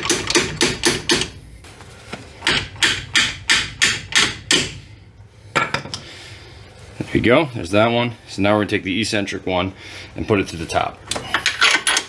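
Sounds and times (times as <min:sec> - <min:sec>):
hammer striking metal bolt: 0:00.0 - 0:01.4, 0:02.4 - 0:04.8.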